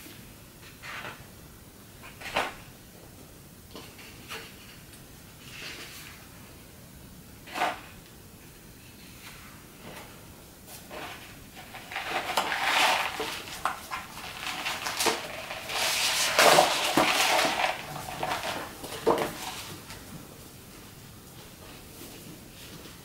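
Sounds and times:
large paper sheets rustling: 0:10.8 - 0:20.3.

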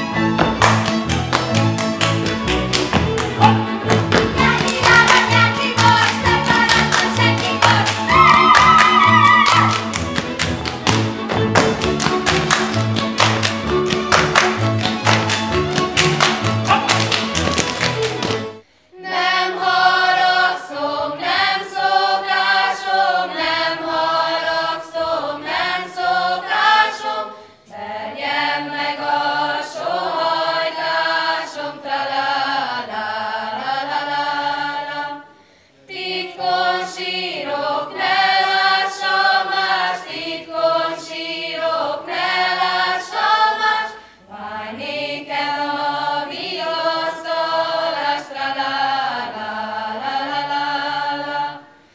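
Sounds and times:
women and girls singing: 0:04.2 - 0:09.8, 0:19.0 - 0:35.3, 0:35.9 - 0:51.8.

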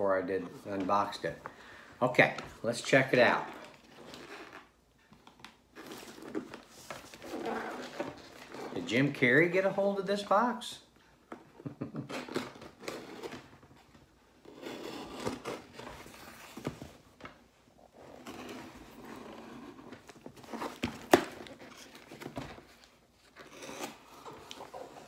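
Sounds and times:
cardboard rustling and scraping: 0:05.8 - 0:09.2, 0:12.4 - 0:25.0.

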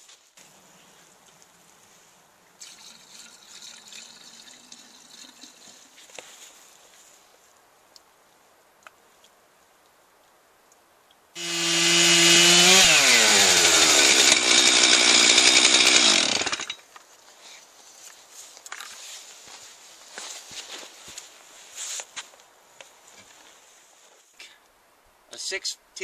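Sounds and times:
chainsaw cutting log: 0:11.4 - 0:16.8.

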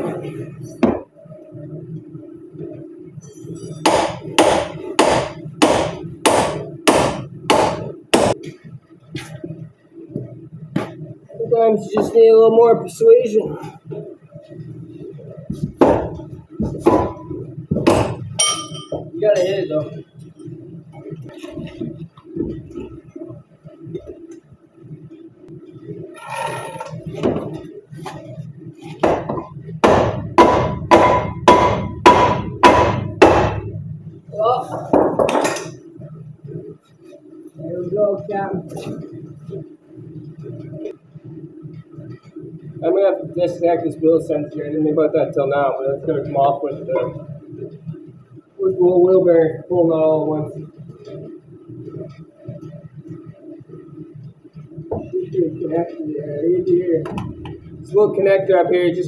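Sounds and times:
hammer striking metal: 0:03.6 - 0:08.4, 0:17.8 - 0:19.1, 0:29.0 - 0:33.7
sledgehammer beating on steel: 0:03.9 - 0:08.4, 0:29.0 - 0:33.8.

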